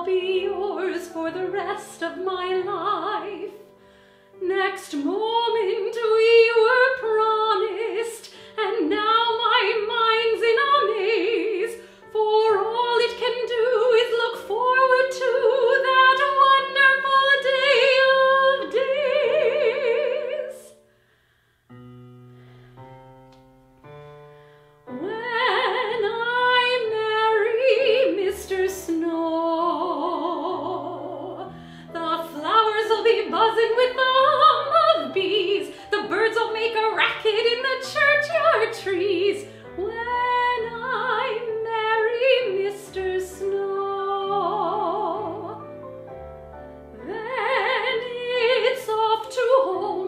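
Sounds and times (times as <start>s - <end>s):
woman singing operatically: 0.0s - 3.6s, 4.4s - 20.8s, 24.9s - 45.6s, 47.0s - 50.0s
instrumental accompaniment: 10.2s - 48.5s.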